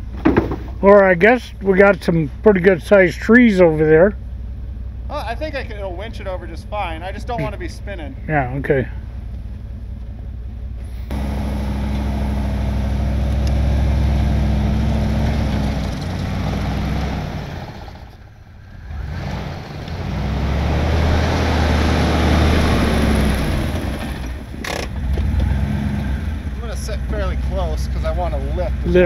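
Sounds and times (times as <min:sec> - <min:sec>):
vehicle engine running: 0:00.0 - 0:29.0.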